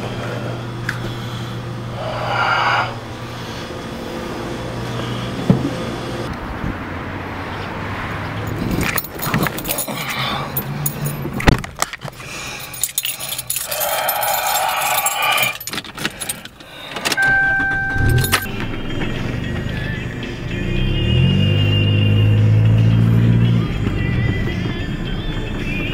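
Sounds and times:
keys jangling: 0:08.5 - 0:18.5
steady high tone: 0:17.2 - 0:22.6.

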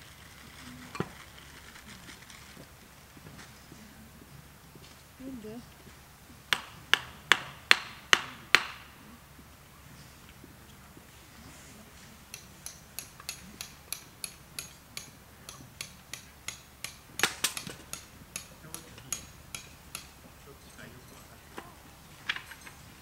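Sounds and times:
tent pegs being hammered: 0:06.4 - 0:09.1, 0:12.2 - 0:20.4.

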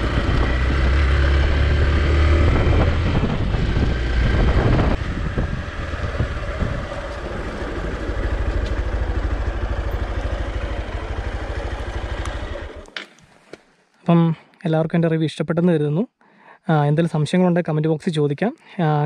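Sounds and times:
motorcycle engine: 0:00.0 - 0:13.2.

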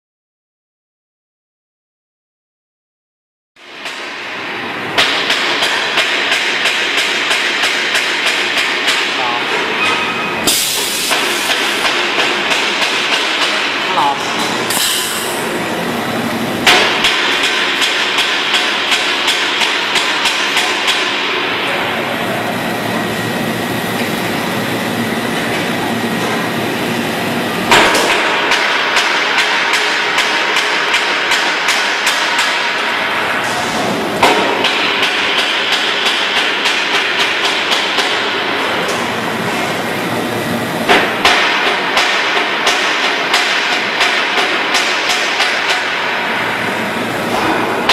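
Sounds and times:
welding arc hissing and crackling: 0:10.5 - 0:12.1, 0:14.7 - 0:15.6.

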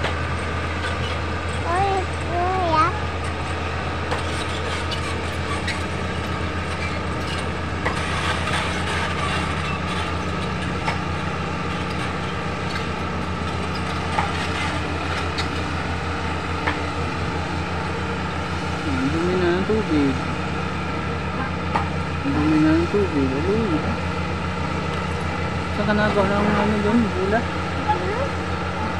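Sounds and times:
metallic clanks of steel tracks: 0:00.0 - 0:18.1
bulldozer diesel engine running: 0:00.0 - 0:28.9.

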